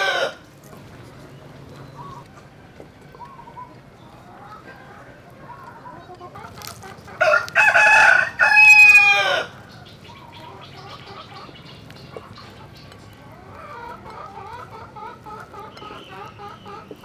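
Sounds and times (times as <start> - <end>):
rooster crowing: 0.0 - 0.4, 7.2 - 9.8
faint bird calls: 1.0 - 7.0.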